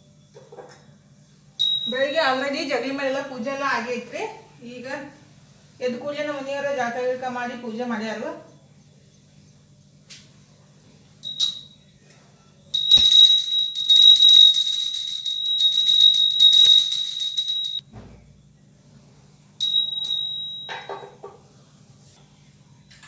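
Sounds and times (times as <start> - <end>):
handheld bell ringing: 1.6 - 2.2, 11.2 - 11.8, 12.7 - 17.8, 19.6 - 21.0.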